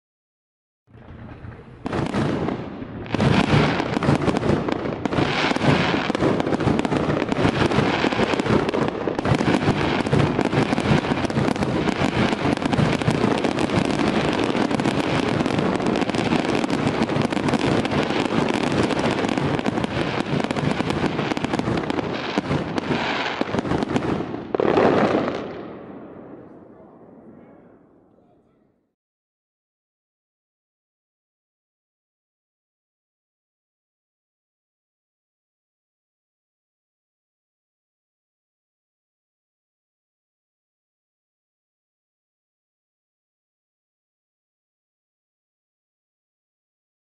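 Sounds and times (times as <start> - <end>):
fireworks bursting and crackling: 0.9 - 27.4.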